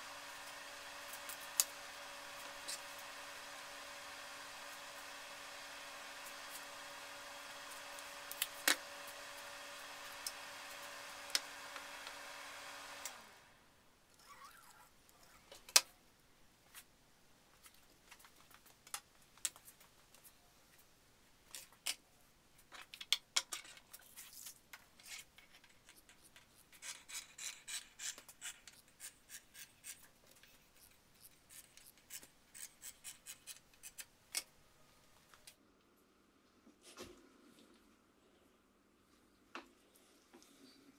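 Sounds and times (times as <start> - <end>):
steady hum: 0.0 - 13.8.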